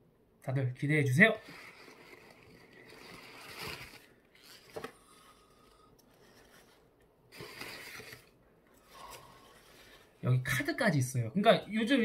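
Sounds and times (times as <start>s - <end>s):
crumpled newspaper rustling: 1.5s - 4.8s
sharp paper crackle: 1.5s - 5.0s.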